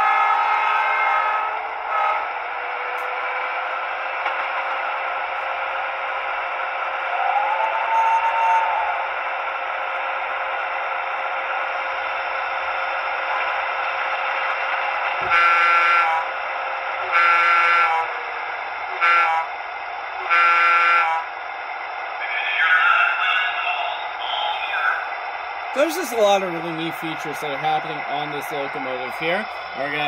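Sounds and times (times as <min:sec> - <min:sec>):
locomotive horn: 0:00.0 - 0:03.4, 0:07.2 - 0:09.1, 0:15.2 - 0:16.4, 0:17.0 - 0:19.6, 0:20.2 - 0:21.4
diesel locomotive idling: 0:00.0 - 0:30.0.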